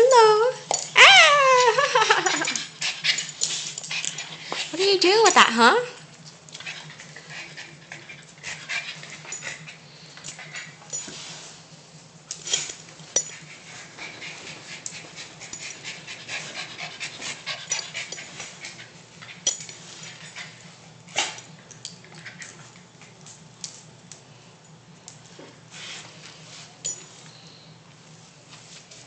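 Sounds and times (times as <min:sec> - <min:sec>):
dog panting: 0:06.6 - 0:10.8, 0:13.3 - 0:19.4.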